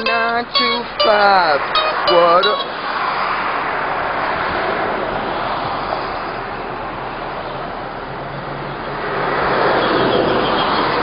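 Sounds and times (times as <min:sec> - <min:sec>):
mandolin strumming: 0:00.0 - 0:02.9
street traffic hiss: 0:00.0 - 0:11.0.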